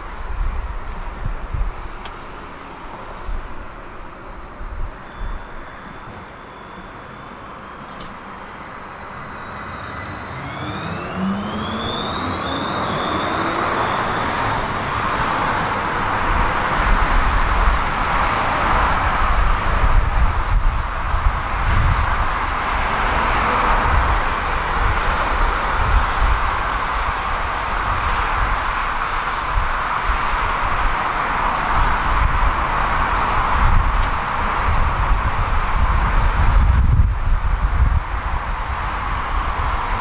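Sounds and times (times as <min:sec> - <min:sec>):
tram motor whine: 0:00.0 - 0:21.5
wheel-on-rail rumble: 0:00.0 - 0:40.0.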